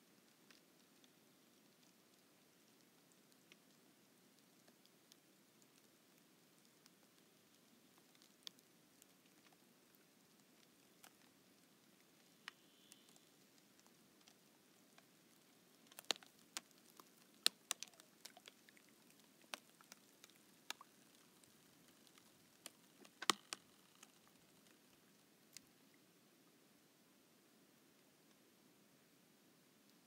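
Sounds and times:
lake ice crackling and popping: 0.0s - 26.2s.

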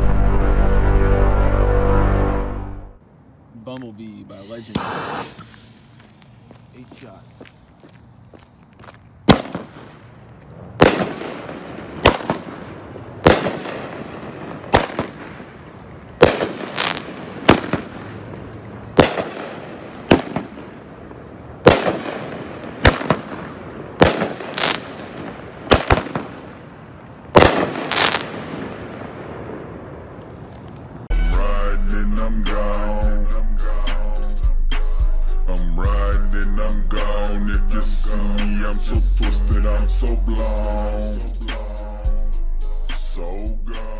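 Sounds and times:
firework bangs with echo: 4.6s - 6.0s, 9.3s - 10.1s, 10.8s - 30.3s.

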